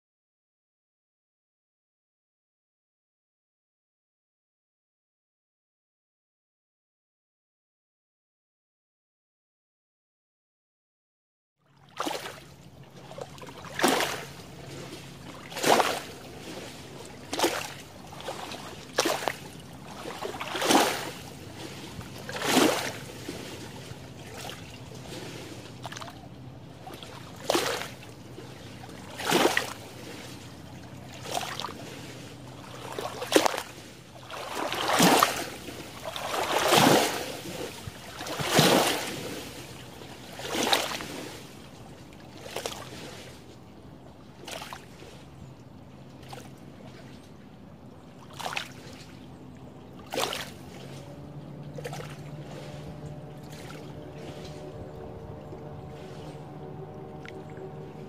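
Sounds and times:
waves lapping at shore: 11.7 - 58.0.

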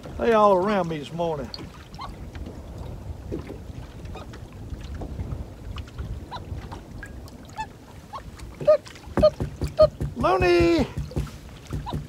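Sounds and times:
loon calling: 7.5 - 11.0.

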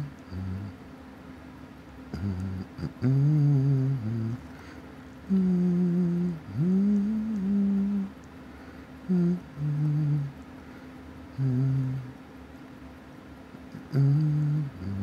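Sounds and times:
man humming: 0.0 - 0.8, 2.1 - 4.6, 5.2 - 8.2, 9.0 - 10.4, 11.3 - 12.2, 13.7 - 15.0.

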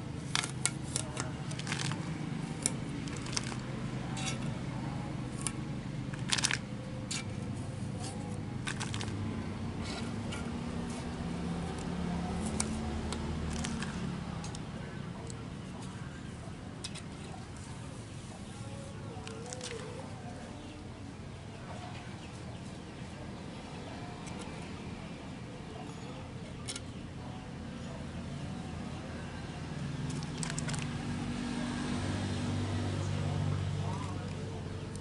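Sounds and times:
steady low hum: 0.0 - 35.0
blade clicking and scraping on glass: 0.2 - 9.2.

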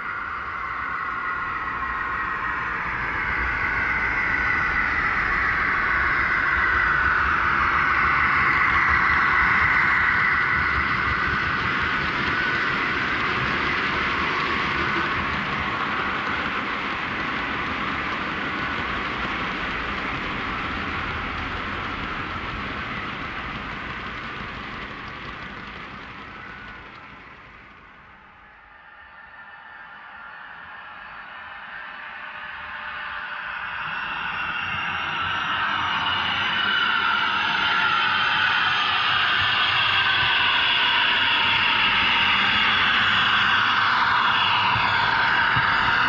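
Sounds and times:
model train running whirr: 2.9 - 28.6, 36.5 - 46.0
model train wagons clattering on rails: 12.1 - 28.2.

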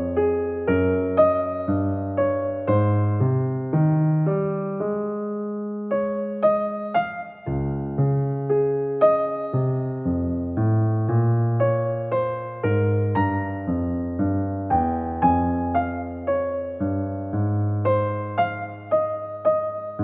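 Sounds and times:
gentle piano music: 0.0 - 20.0.

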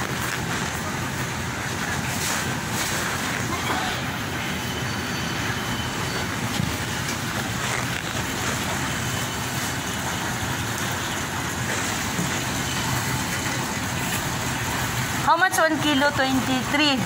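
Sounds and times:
supermarket rushing hum: 0.0 - 17.0.

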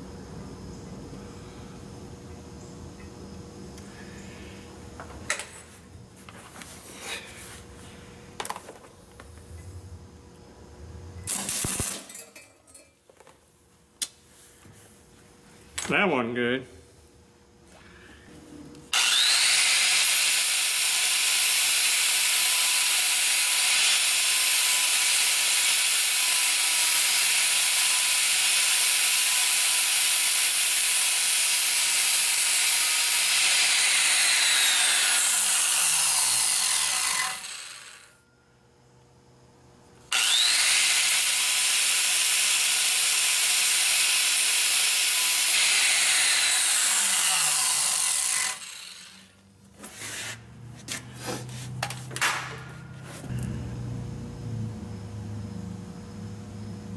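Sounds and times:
angle grinder grinding metal: 18.9 - 38.2, 40.1 - 50.4.

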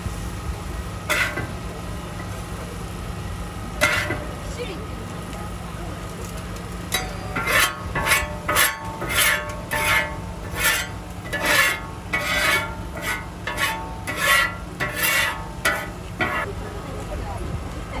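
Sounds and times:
steady low hum: 0.0 - 18.0
metal spatula scraping griddle: 1.0 - 1.6, 3.8 - 4.6, 6.9 - 16.5.

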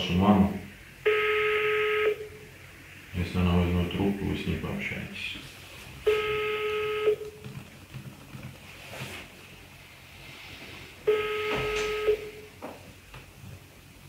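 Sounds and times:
telephone ringback tone: 1.1 - 2.4, 6.1 - 7.4, 11.1 - 12.5.

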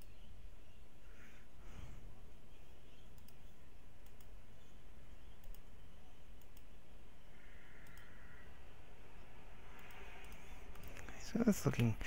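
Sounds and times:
computer mouse clicking: 0.0 - 0.3, 2.9 - 8.5, 9.7 - 12.0
faint room tone hiss: 0.0 - 12.0.

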